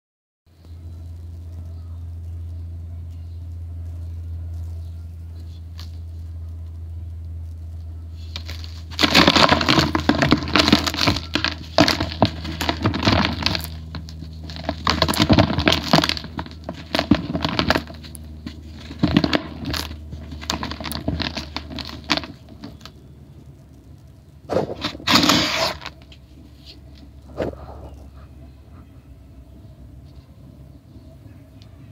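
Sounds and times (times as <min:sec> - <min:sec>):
steady low hum: 0:00.5 - 0:31.9
powdery block crunching by hand: 0:08.2 - 0:23.1, 0:23.7 - 0:28.0.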